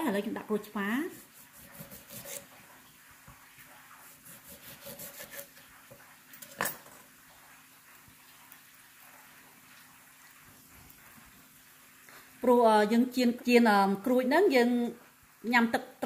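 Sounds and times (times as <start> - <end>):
knife cutting on wooden board: 1.1 - 2.6, 4.0 - 6.0.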